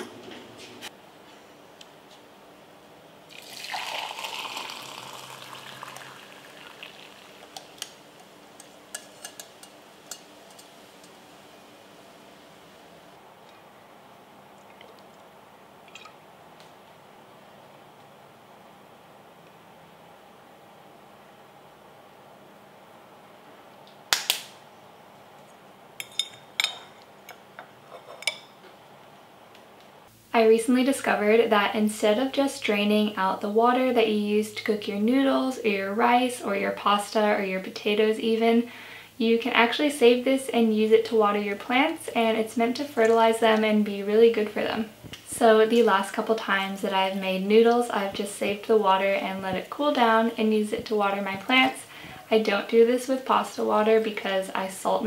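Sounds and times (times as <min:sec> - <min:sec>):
water pouring through strainer: 0:03.3 - 0:07.8.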